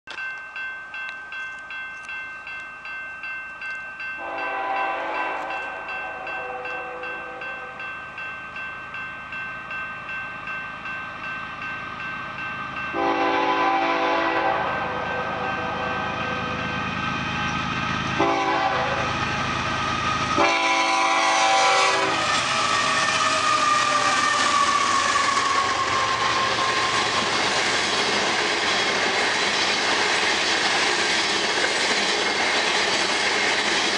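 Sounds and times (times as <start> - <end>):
crossing bell ringing: 0.1 - 33.9
train rumbling and clacking: 0.1 - 33.9
locomotive horn: 4.2 - 7.8, 12.9 - 16.8, 18.2 - 19.5, 20.4 - 27.2.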